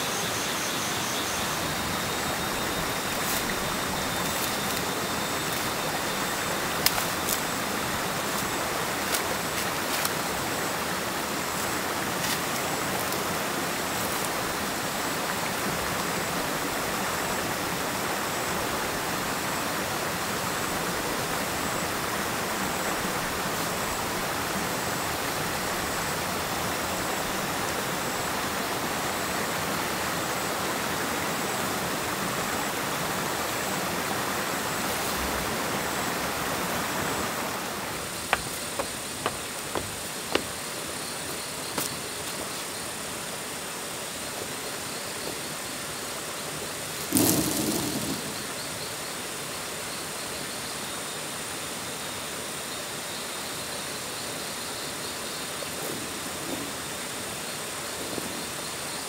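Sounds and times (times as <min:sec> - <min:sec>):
running water: 0:00.0 - 0:49.9
corn ears snapping off stalks: 0:06.8 - 0:07.4.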